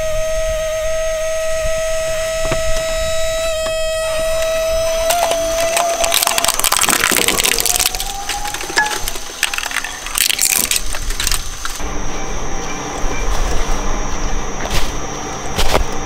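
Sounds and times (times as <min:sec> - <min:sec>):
shredder motor hum and whine: 0:00.0 - 0:16.0
shredder crunching plastic: 0:04.0 - 0:11.8.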